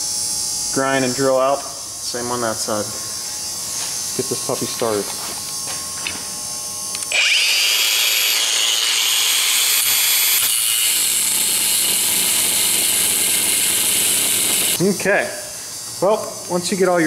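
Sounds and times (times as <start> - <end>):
angle grinder grinding metal: 0.0 - 17.0
electric buzz from shop light: 0.0 - 17.0.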